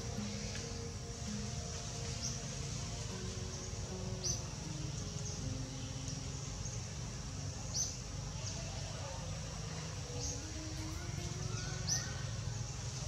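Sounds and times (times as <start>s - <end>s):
high-pitched insect drone: 0.0s - 13.0s.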